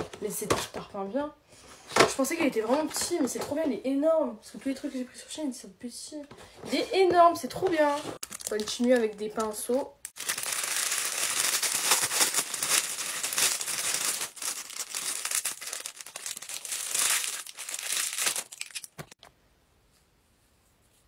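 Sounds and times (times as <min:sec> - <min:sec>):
plastic packaging crinkling: 0:08.2 - 0:19.2.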